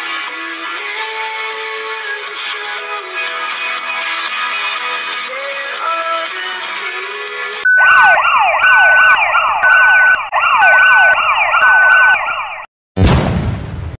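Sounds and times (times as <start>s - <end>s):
steady beep: 7.7s - 12.6s
electronic siren yelps: 7.7s - 12.7s
loud boom: 13.0s - 14.0s.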